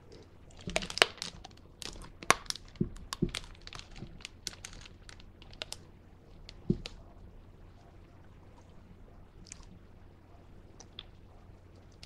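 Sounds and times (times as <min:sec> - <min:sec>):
hard candy crunched between teeth: 0:00.6 - 0:05.8.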